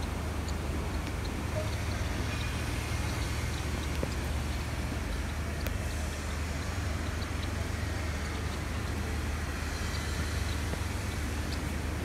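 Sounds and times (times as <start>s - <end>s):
faint high ticks: 0.0s - 6.4s, 9.9s - 11.7s.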